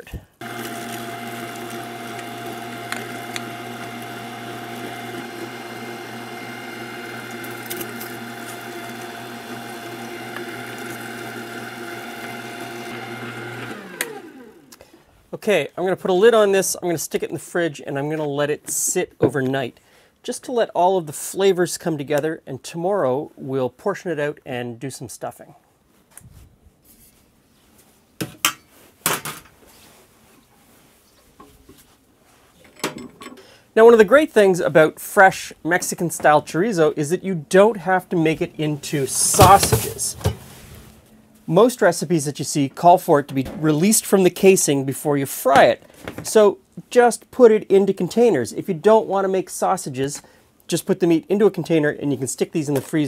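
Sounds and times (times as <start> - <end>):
electric meat grinder motor humming: 0.4 - 14.7, 39.3 - 40.4.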